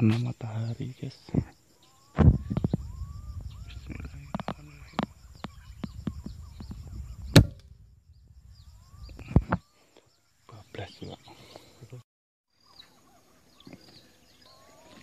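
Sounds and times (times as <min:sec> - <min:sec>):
low rumble: 0:02.3 - 0:09.5
air rifle shot: 0:07.2 - 0:07.8.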